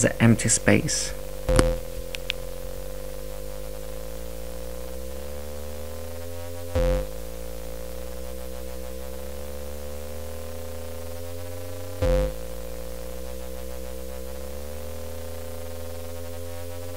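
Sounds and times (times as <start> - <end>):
electronic drone music: 1.1 - 16.9
loud low hit: 1.4 - 2.1.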